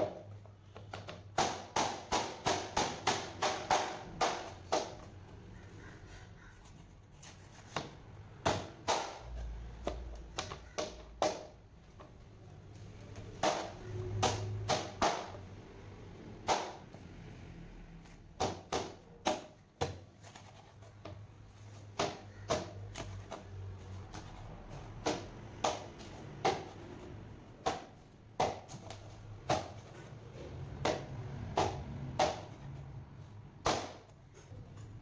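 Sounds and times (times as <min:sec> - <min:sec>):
knife chopping on a board: 0:21.9 - 0:30.0.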